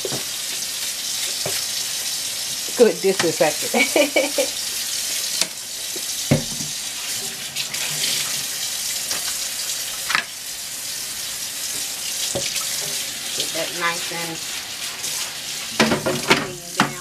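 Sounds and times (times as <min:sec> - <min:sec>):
tap running into sink: 0:01.3 - 0:01.6, 0:03.1 - 0:03.4, 0:05.4 - 0:08.5, 0:11.7 - 0:13.5, 0:15.7 - 0:17.0
things knocking in sink: 0:06.2 - 0:06.8, 0:15.8 - 0:17.0.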